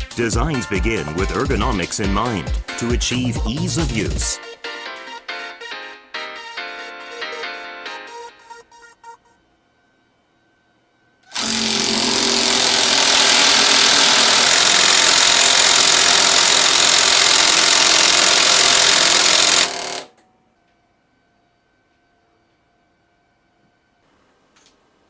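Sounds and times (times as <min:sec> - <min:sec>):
pulse wrench pulsing: 0:11.2 - 0:20.1.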